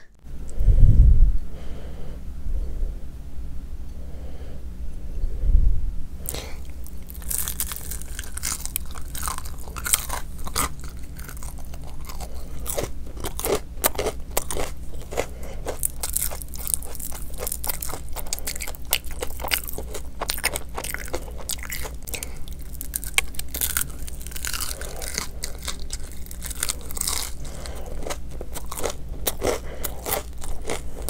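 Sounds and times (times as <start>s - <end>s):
crispy food crunching: 6.2s - 31.0s.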